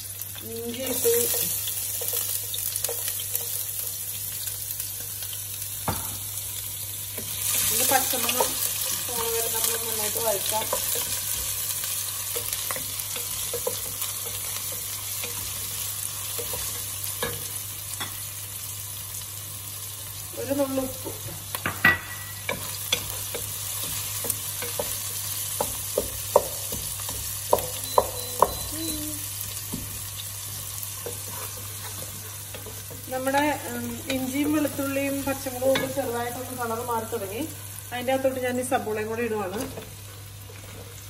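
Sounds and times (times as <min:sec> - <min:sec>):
food sizzling in hot oil: 0:00.0 - 0:41.0
spatula scraping a pan: 0:31.0 - 0:33.5.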